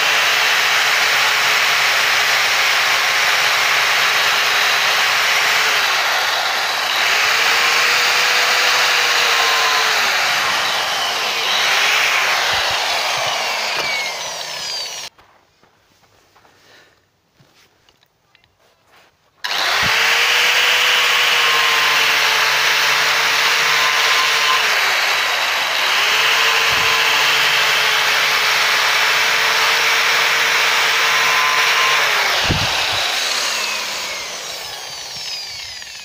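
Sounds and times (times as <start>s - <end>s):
angle grinder whining: 0.0s - 15.1s, 19.4s - 36.0s
grinder cutting into banana: 4.6s - 15.1s.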